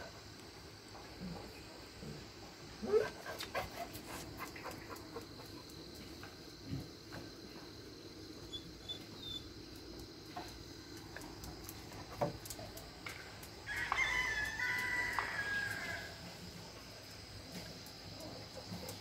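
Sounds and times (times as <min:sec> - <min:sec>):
rooster crowing: 0:13.6 - 0:16.2.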